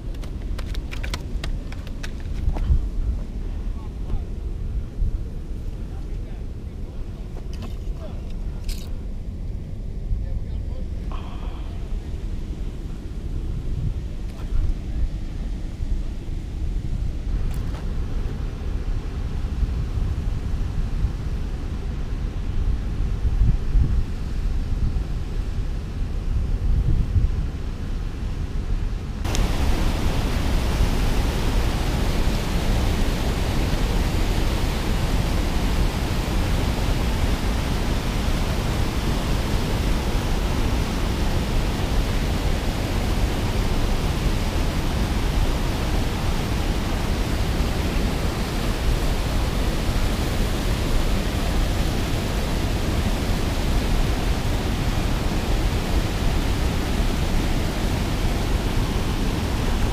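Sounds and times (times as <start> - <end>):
foaming water churning: 29.3 - 59.9.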